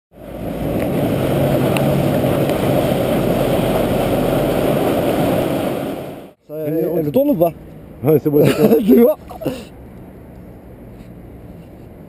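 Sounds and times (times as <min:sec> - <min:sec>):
wind and water rushing: 0:00.1 - 0:06.4
outboard motor drone: 0:00.2 - 0:06.3.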